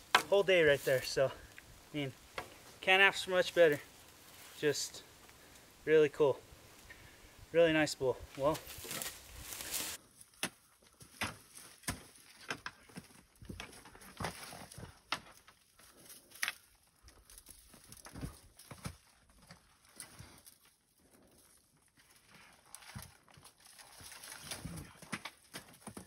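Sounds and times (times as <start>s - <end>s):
footsteps crunching through dry brush: 0.0s - 5.6s, 8.2s - 10.2s.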